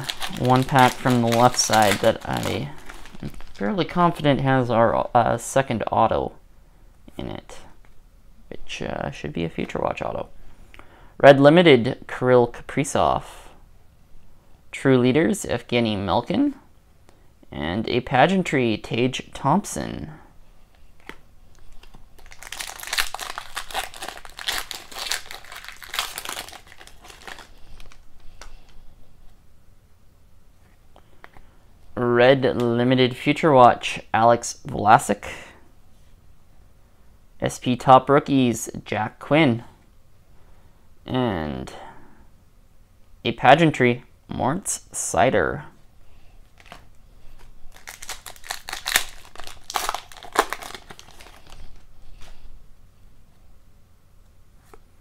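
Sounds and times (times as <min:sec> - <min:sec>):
foil wrapper crinkling: 0:00.0 - 0:04.3, 0:21.0 - 0:28.8, 0:46.5 - 0:52.3
handling cards: 0:00.0 - 0:04.5, 0:20.7 - 0:29.4, 0:46.4 - 0:52.4.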